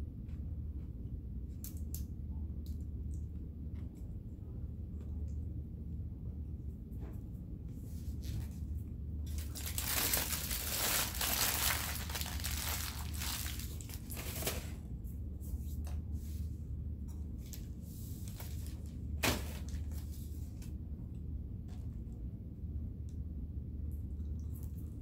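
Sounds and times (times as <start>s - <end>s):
low hum: 0.0s - 25.0s
food wrapping crinkling: 9.3s - 14.8s.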